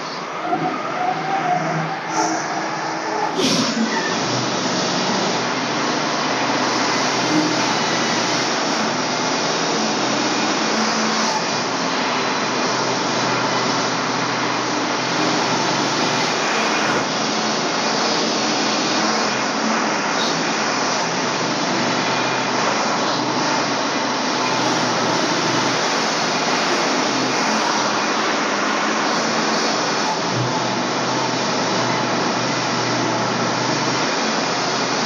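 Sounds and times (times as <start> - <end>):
sawmill engine running: 0.0 - 35.0
band blade sawing log: 6.0 - 9.0.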